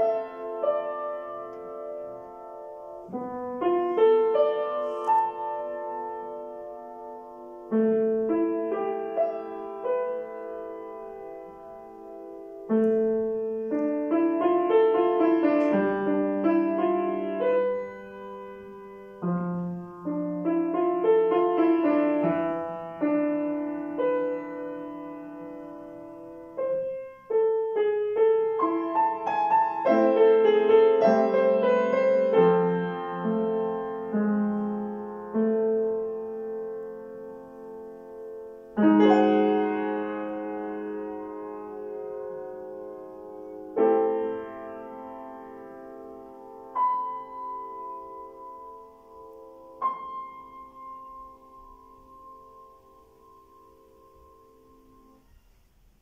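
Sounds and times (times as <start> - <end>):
solo grand piano playing: 0.0 - 56.0.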